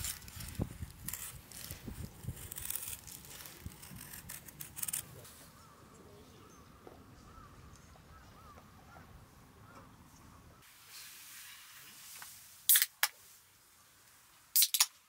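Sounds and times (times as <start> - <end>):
knife scraping wooden stick: 0.0 - 5.3.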